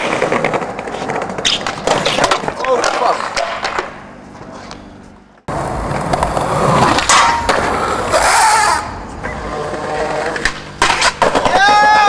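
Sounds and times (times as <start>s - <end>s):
skateboard rolling on pavement: 0.0s - 4.6s, 5.2s - 12.0s
skateboard board clacks: 10.0s - 12.0s.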